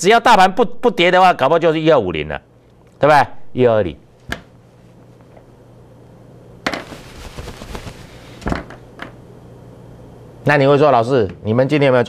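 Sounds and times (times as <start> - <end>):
faint steady hum: 0.0 - 12.0
paper rustling: 6.7 - 8.5.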